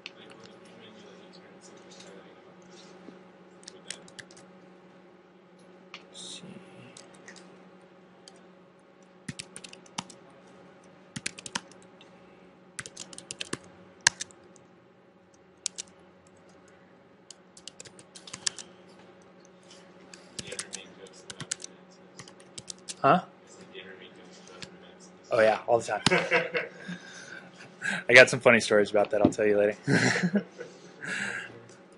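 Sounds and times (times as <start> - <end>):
steady low hum: 0.0 - 31.9
computer keyboard typing: 3.6 - 4.4, 9.3 - 10.2, 11.2 - 11.8, 12.8 - 14.4, 15.6 - 16.5, 17.3 - 18.7, 20.1 - 23.0.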